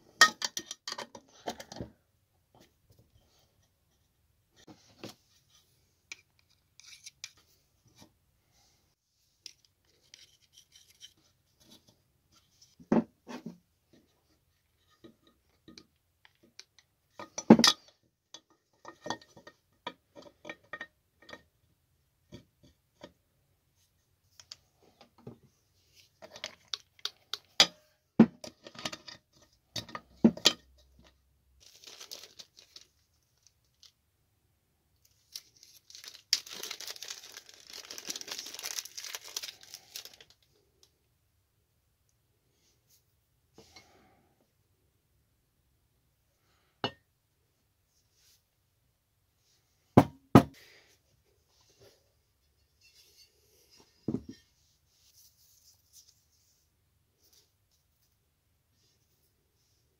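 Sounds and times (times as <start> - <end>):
small objects knocking and scratching: 26.0 - 33.9, 35.1 - 40.4.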